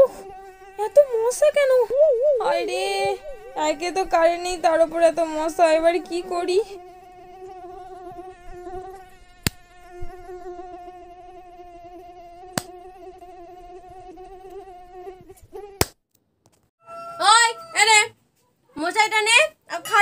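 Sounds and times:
mosquito buzzing: 0.0s - 16.0s
hands slapping: 12.5s - 12.7s, 15.8s - 16.0s.

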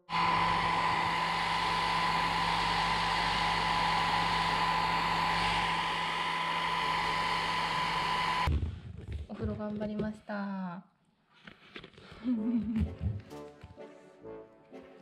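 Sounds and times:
hair dryer running: 0.0s - 8.5s.

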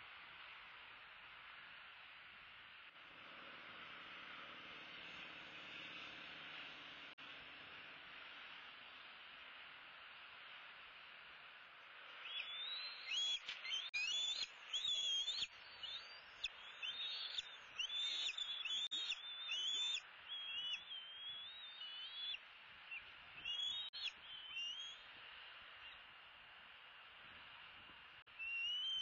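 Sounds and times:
steady hiss: 0.0s - 21.8s
eagles chittering whistles: 12.2s - 25.0s, 28.4s - 29.0s.

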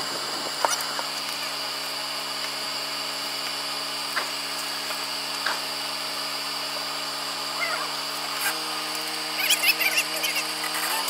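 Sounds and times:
engine running at low revs: 0.0s - 11.0s
steady high whine: 0.0s - 11.0s.

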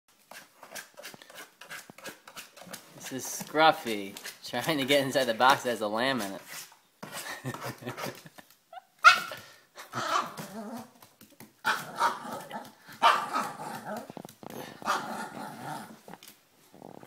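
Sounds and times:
small dog barking: 9.0s - 9.4s, 10.0s - 10.6s, 11.6s - 14.1s, 14.8s - 15.6s.

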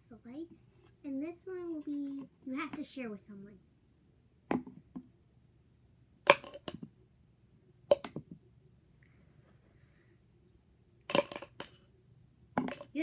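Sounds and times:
wooden pencils clacking against cup: 11.1s - 11.8s.

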